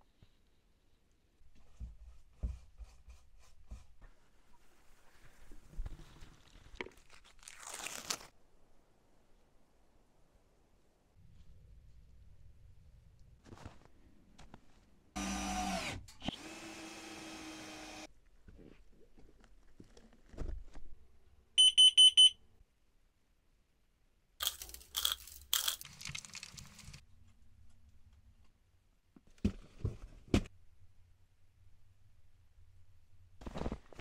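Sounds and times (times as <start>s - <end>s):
high-pitched detector beeps: 21.6s - 22.4s.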